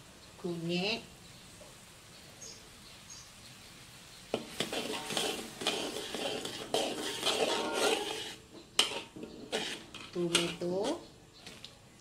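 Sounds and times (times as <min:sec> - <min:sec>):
metal ladle scraping a wok: 0:04.3 - 0:11.1
paste bubbling: 0:04.4 - 0:09.9.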